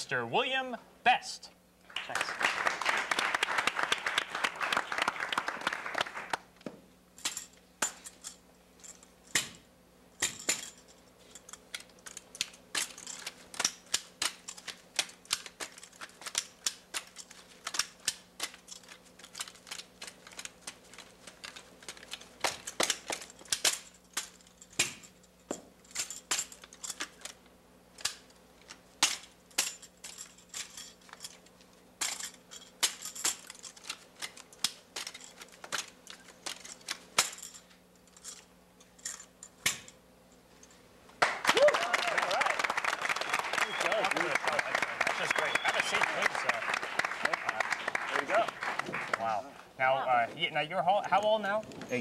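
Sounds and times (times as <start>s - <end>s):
applause: 1.9s - 6.5s, 41.2s - 49.4s.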